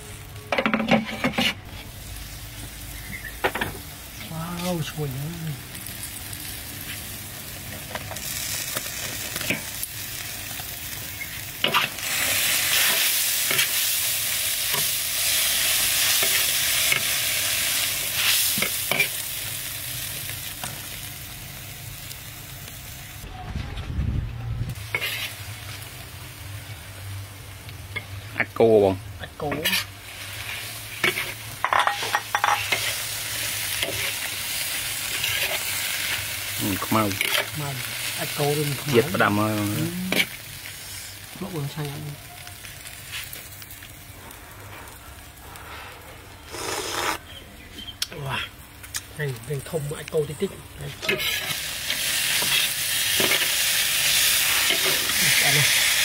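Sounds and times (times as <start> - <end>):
vegetables sizzling in a wok: 0.0 - 23.2, 24.7 - 56.0
metal utensil scraping a pan: 0.5 - 1.8, 24.9 - 25.4, 29.5 - 29.9, 31.0 - 33.0, 51.0 - 51.6.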